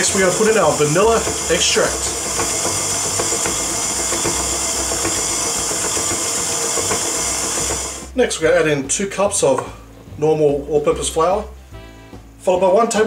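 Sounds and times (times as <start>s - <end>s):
stand mixer running: 0.0s - 8.2s.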